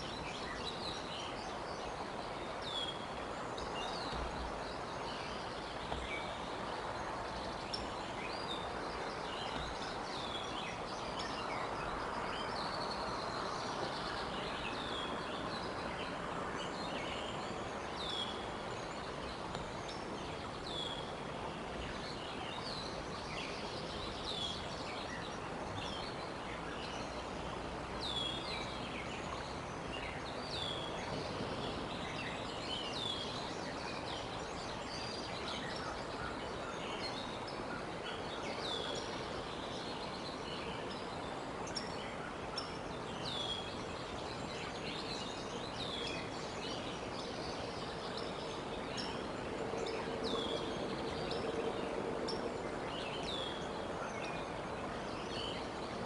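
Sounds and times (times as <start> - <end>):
steady background hiss: 0.0 - 56.0.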